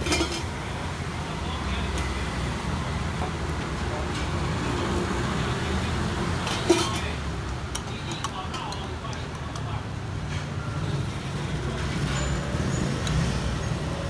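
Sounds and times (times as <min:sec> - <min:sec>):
busy food stall rumble: 0:00.0 - 0:14.0.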